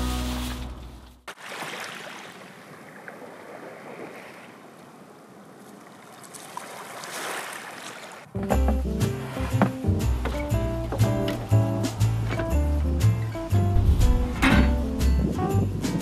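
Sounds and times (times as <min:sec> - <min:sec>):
music: 0:00.0 - 0:01.1, 0:08.3 - 0:16.0.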